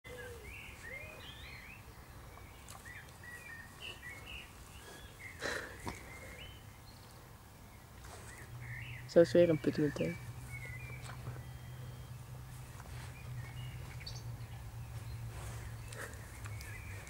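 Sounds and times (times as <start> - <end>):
small birds chirping: 0.1 - 17.0
pig rustling in grass: 7.9 - 17.0
low steady rumble: 10.1 - 17.0.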